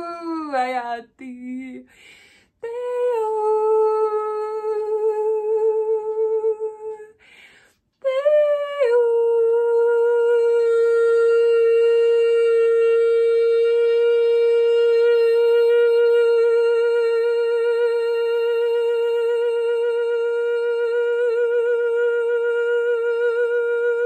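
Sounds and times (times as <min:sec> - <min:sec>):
woman singing long held vowels: 0:00.0 - 0:02.0, 0:02.6 - 0:07.2, 0:08.0 - 0:24.0
woman breathing in: 0:01.9 - 0:02.6, 0:07.2 - 0:08.0.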